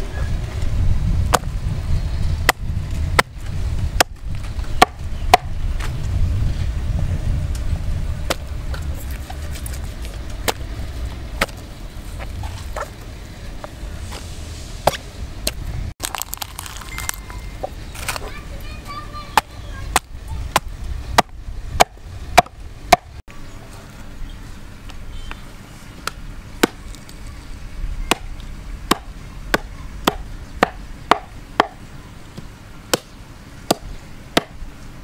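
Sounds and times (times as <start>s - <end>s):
low rumble: 0.0s - 18.0s
cleaver chopping on wooden block: 26.0s - 26.8s, 28.1s - 28.3s, 28.9s - 31.8s, 32.9s - 34.6s.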